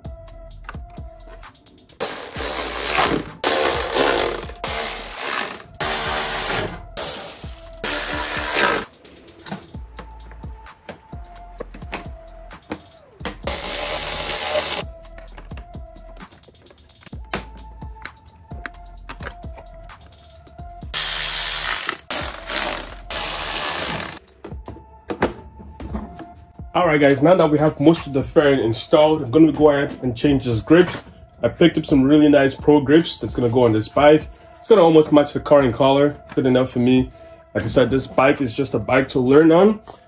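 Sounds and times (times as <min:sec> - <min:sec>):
background music: 0:00.0 - 0:40.0
power driver running: 0:02.0 - 0:08.9, 0:13.5 - 0:14.8, 0:21.0 - 0:24.2.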